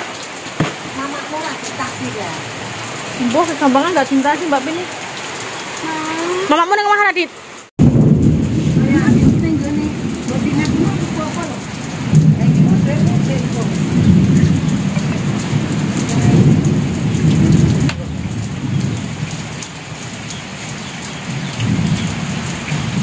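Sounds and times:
heavy rain pouring: 0.0s - 23.0s
drip ticks: 19.6s - 23.0s.

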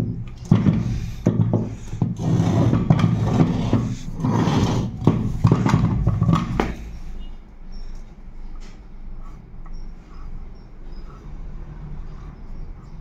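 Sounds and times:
starter motor knocking on concrete: 0.0s - 6.8s.

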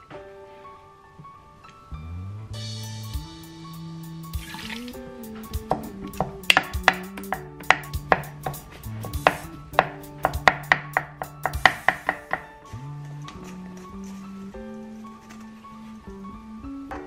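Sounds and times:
wooden spatula mashing potatoes: 5.8s - 12.5s
spatula knocking against metal pot: 9.2s - 12.5s.

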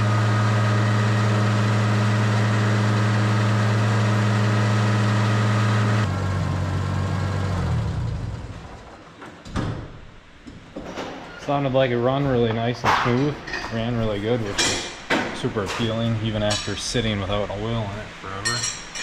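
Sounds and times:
tractor engine winding down: 0.0s - 9.0s.

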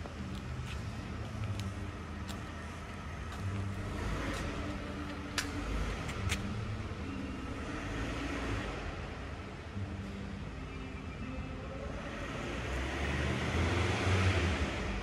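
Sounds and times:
footsteps on concrete: 0.0s - 6.6s.

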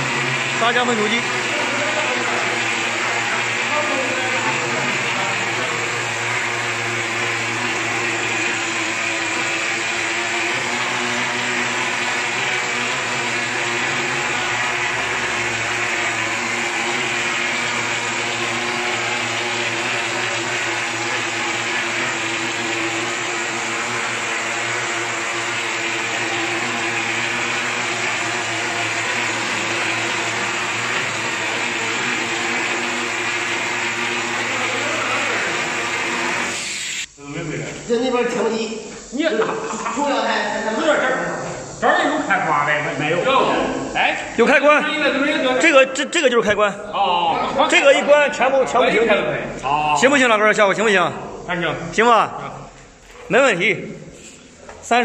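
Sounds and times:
machine motor hum: 0.0s - 36.6s
compressed air spraying mortar: 7.3s - 45.4s, 52.8s - 55.0s.

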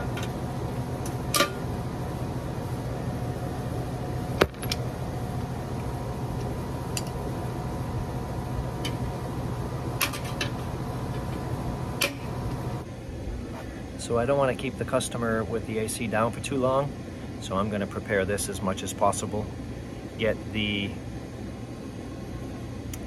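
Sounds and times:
steady hum: 0.0s - 23.0s.

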